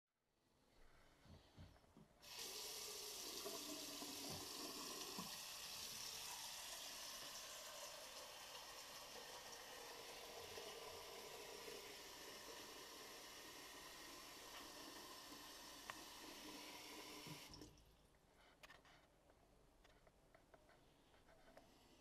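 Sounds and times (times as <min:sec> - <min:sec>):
water running into sink: 0:02.2 - 0:17.8.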